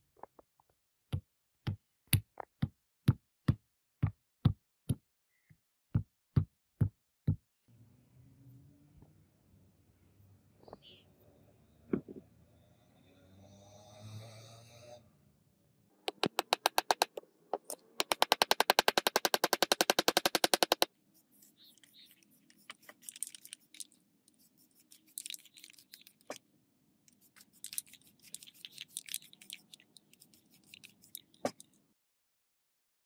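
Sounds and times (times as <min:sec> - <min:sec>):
spray can ball rattling: 0:21.8 - 0:26.4, 0:27.1 - 0:31.7.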